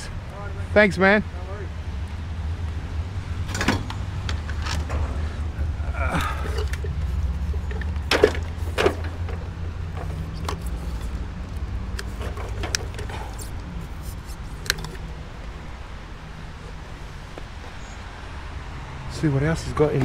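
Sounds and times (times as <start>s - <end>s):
low engine rumble: 0.0s - 20.0s
knocks and clunks of items handled: 3.4s - 5.5s, 6.1s - 15.1s.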